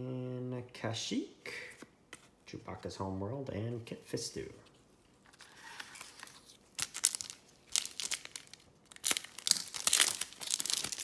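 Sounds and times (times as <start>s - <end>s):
plastic wrapper crinkling: 5.3s - 11.0s
plastic wrapper tearing: 5.4s - 11.0s.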